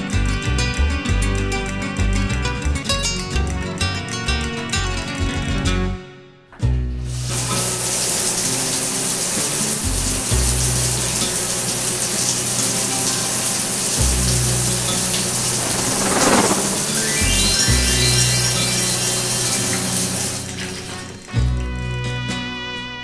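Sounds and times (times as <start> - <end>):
shower water spraying: 7.1 - 21.2
rising run of musical notes: 15.2 - 17.9
whoosh: 15.2 - 18.0.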